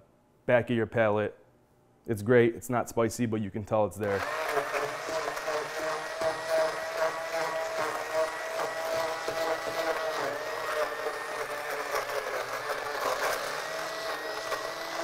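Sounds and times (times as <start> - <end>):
stick blender running: 4.0 - 15.0.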